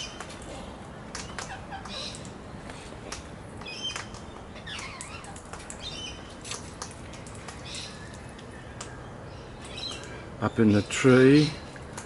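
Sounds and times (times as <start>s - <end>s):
birds chirping: 0.0s - 12.0s
sharp clicks and rustles: 0.1s - 9.0s.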